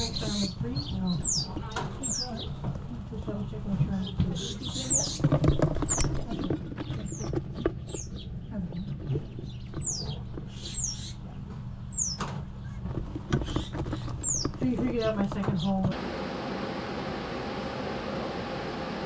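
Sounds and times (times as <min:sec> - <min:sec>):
ducklings peeping: 0:00.0 - 0:15.9
steady low hum: 0:00.0 - 0:19.0.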